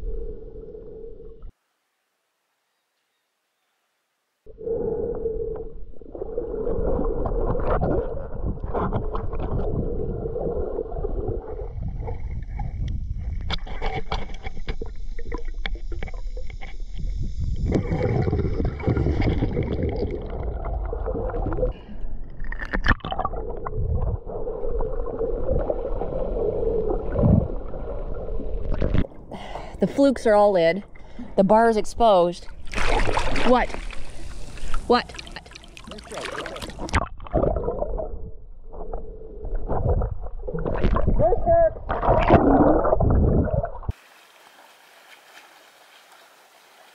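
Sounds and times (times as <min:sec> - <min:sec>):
muffled underwater rumble: 0:04.5 - 0:22.4, 0:23.0 - 0:29.6, 0:35.9 - 0:43.9
small underwater clicks: 0:12.3 - 0:18.0.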